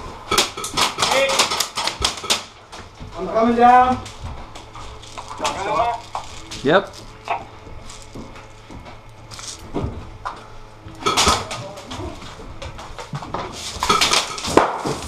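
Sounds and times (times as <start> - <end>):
knocks and clatter in metal container: 0.3 - 2.5, 13.6 - 15.0
footsteps on metal floor: 2.6 - 15.0.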